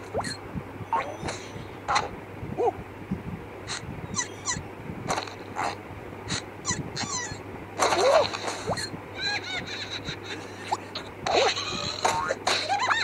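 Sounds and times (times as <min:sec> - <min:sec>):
cartoon squeaks and chirps: 0:00.1 - 0:02.1, 0:03.7 - 0:04.6, 0:05.6 - 0:07.4, 0:08.0 - 0:09.0
cartoon sound effects: 0:00.2 - 0:01.4.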